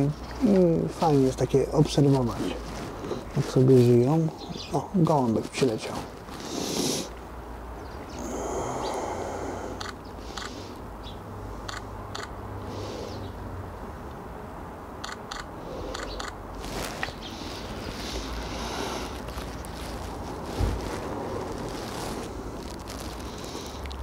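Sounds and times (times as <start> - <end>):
low outdoor hum: 0.0 - 24.0
camera shutter clicks: 15.0 - 16.4.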